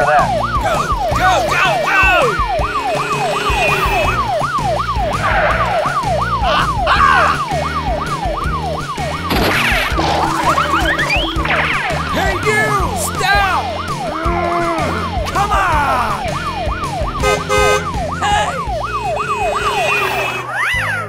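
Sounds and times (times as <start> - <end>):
background music: 0.0 - 21.0
police siren wailing: 0.0 - 21.0.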